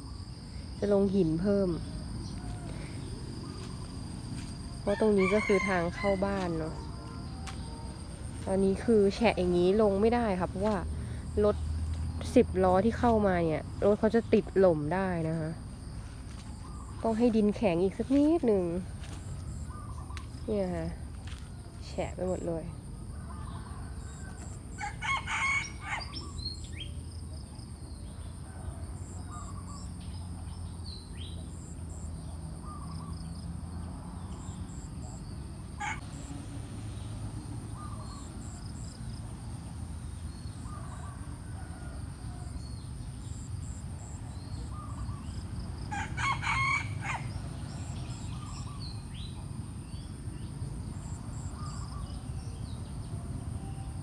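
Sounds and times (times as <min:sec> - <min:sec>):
rooster crowing: 0:04.8 - 0:08.2, 0:23.1 - 0:26.3, 0:45.8 - 0:47.7
small birds chirping: 0:06.2 - 0:21.7.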